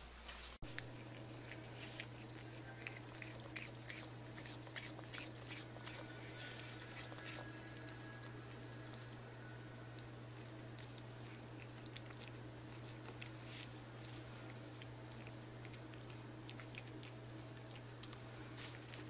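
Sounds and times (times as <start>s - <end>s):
low hum: 0.0s - 19.0s
cat chewing wet food: 0.6s - 19.0s.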